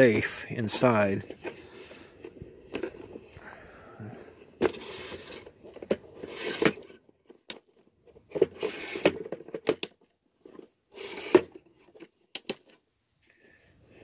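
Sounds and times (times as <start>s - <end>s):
tripod leg clicks and scrapes: 1.2s - 3.5s, 4.4s - 12.8s.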